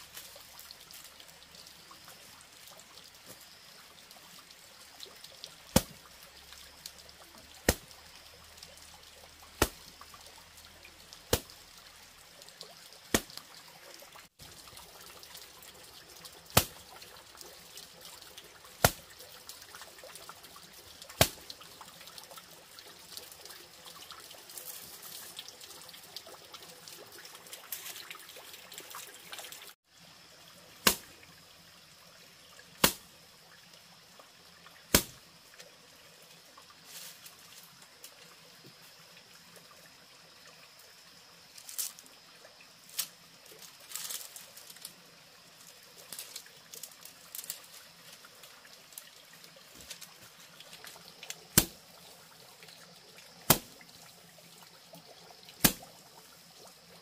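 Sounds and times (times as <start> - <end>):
water trickling: 0.0 - 57.0.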